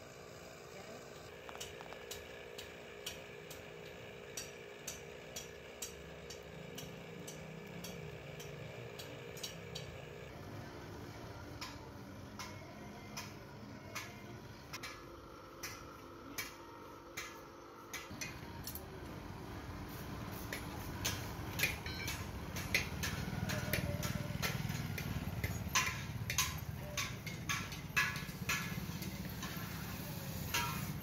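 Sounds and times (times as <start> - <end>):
air blower humming: 0.0 - 31.0
regular sharp ticking: 20.5 - 29.6.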